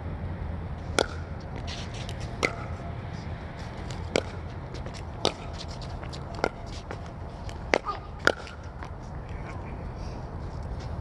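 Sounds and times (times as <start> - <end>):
steady low rumble: 0.0 - 11.0
paddles striking ball: 1.0 - 2.8, 3.8 - 9.0.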